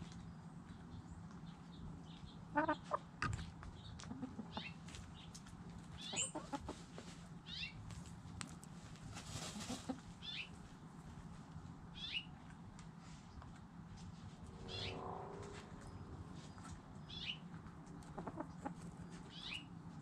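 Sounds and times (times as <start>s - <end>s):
chickens scratching in dry dirt: 0.0s - 11.8s
wings flapping and dirt flung: 8.9s - 10.0s.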